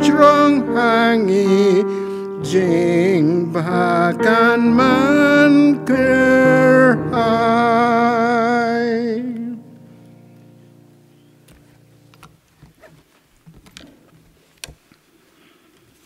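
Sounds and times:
hymn singing: 0.0s - 10.2s
instrumental chord: 0.0s - 12.2s.

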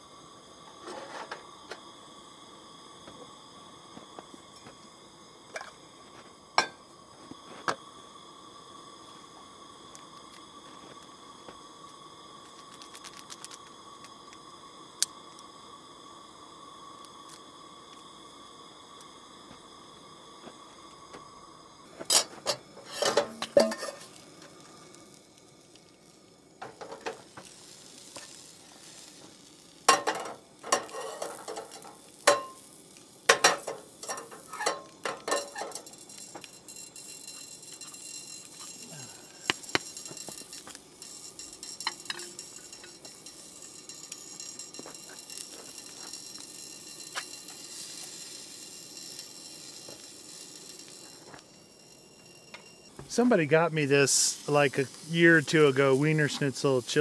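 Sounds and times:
hot dogs sizzling in a frying pan: 0.0s - 57.0s
metal pot and utensils clanking: 22.1s - 24.1s, 29.9s - 32.6s, 33.3s - 35.9s.

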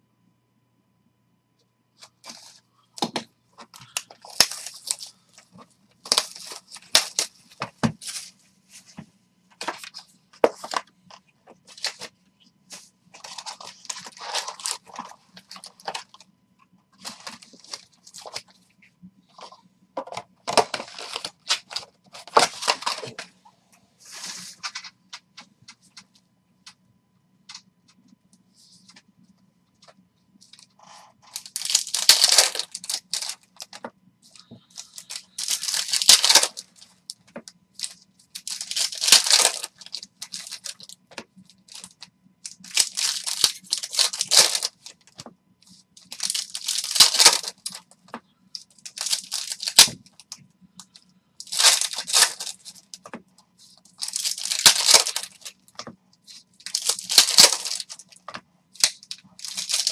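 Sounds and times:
foil wrappers tearing and crinkling: 3.8s - 5.2s, 6.0s - 8.3s, 13.2s - 16.2s, 17.0s - 18.4s, 20.5s - 23.2s, 30.5s - 33.8s, 34.4s - 36.9s, 37.8s - 41.0s, 41.6s - 45.0s, 46.0s - 47.8s, 48.7s - 50.3s, 51.4s - 53.2s, 53.8s - 58.2s, 58.8s - 59.9s.

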